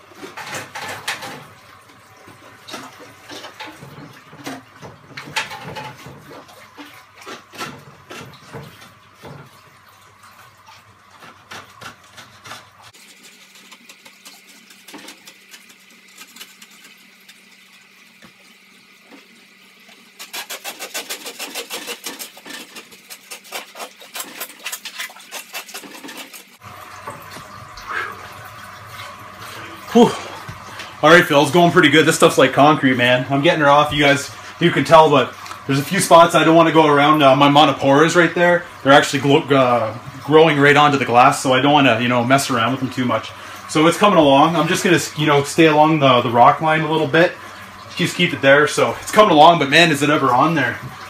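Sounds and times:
water splashing: 0.0s - 51.0s
scraper scraping algae off glass: 11.1s - 17.4s, 20.1s - 26.6s.

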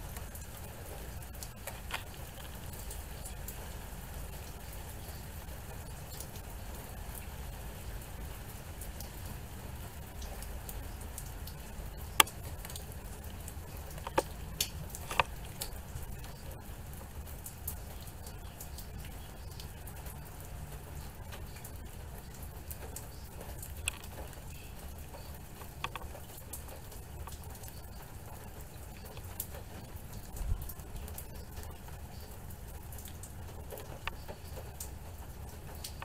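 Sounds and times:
steady rain: 0.0s - 36.0s
drips tapping: 10.0s - 36.0s.

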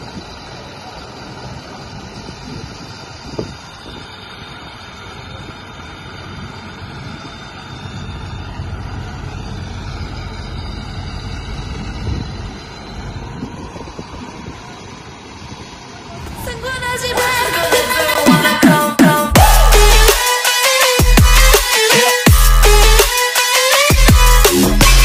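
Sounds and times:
machinery running: 0.0s - 25.0s
tractor diesel engine under load: 0.0s - 25.0s.

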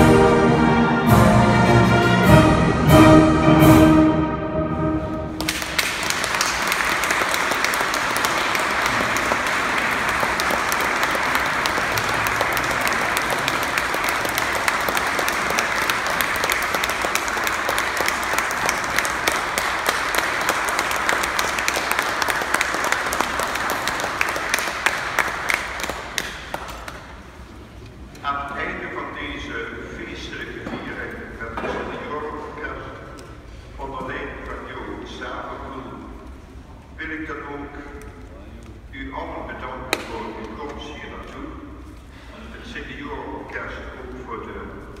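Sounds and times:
crowd applauding: 5.4s - 27.5s.

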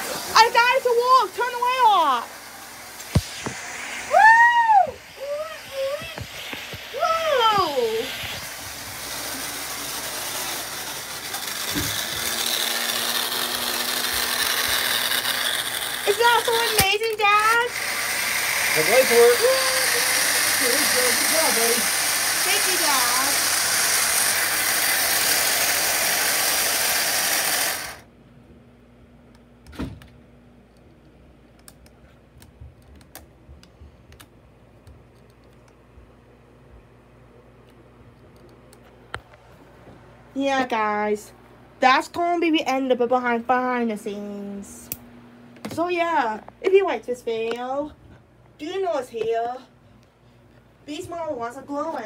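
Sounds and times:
machine whirring: 0.0s - 28.1s.

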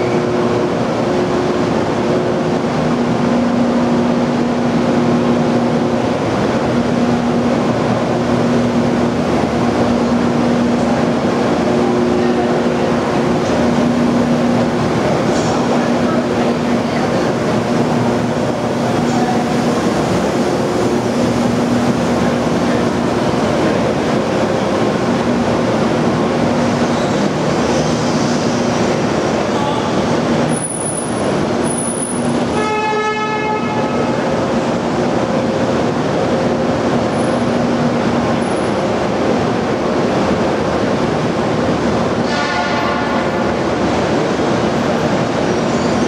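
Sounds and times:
diesel locomotives idling: 0.0s - 46.0s
crowd chatter: 9.6s - 30.4s
short horn toot: 32.5s - 34.0s, 42.2s - 43.3s.

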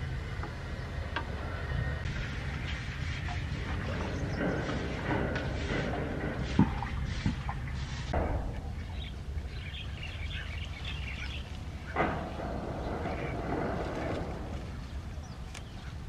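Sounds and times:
small birds chirping: 0.0s - 5.9s, 6.8s - 16.0s
leafy stems rustling: 11.0s - 16.0s.

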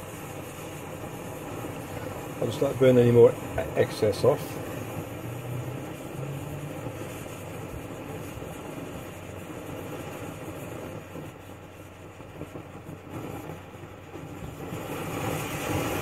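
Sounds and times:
stove flame rushing: 0.0s - 16.0s.

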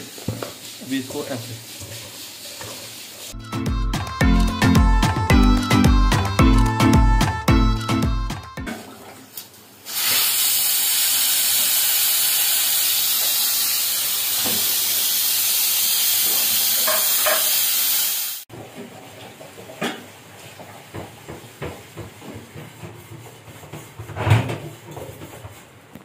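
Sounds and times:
pressure cooker steam hissing: 9.8s - 18.5s.

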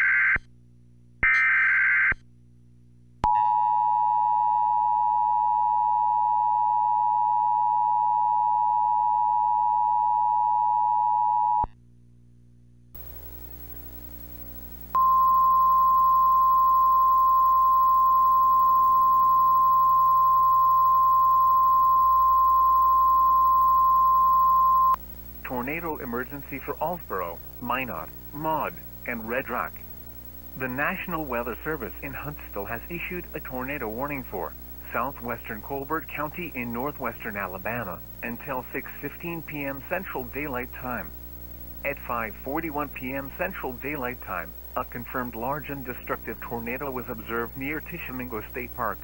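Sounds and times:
low hum: 11.8s - 49.0s
single steady warning tone: 13.0s - 49.0s.

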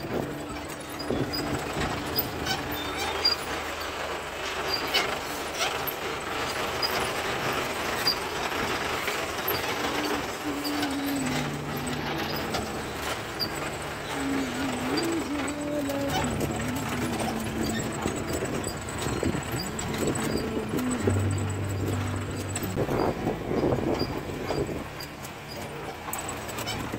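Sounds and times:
jeep body rattling over bumps: 0.0s - 26.9s
jeep engine running: 0.0s - 26.9s.

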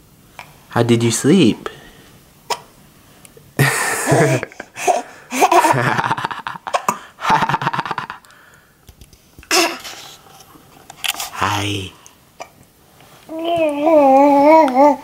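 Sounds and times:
baby laughing and giggling: 4.0s - 6.9s, 9.5s - 10.0s, 13.3s - 15.0s.

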